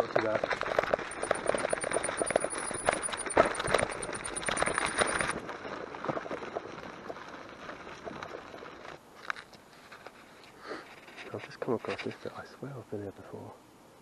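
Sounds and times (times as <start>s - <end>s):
bicycle tyres crunching on gravel: 0.0s - 11.2s
clatter of stones and bike: 0.0s - 12.3s.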